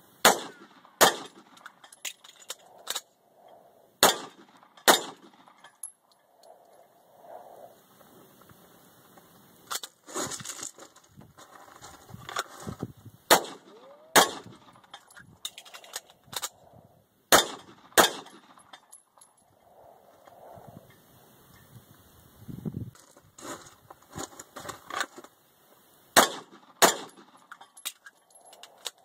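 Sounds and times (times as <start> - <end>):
pistol shots: 0.2 - 1.6, 4.0 - 5.6, 13.3 - 14.8, 17.3 - 18.6, 26.2 - 27.4
gun handling clicks and clatter: 0.4 - 6.9, 8.4 - 16.7, 17.4 - 20.4, 22.9 - 25.4, 26.2 - 29.0.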